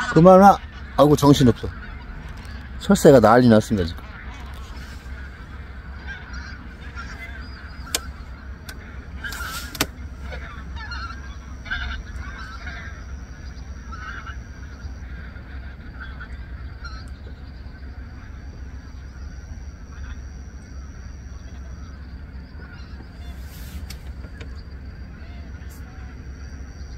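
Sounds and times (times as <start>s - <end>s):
waterfowl honking: 0.0s - 26.9s
sharp clicks: 7.8s - 10.0s.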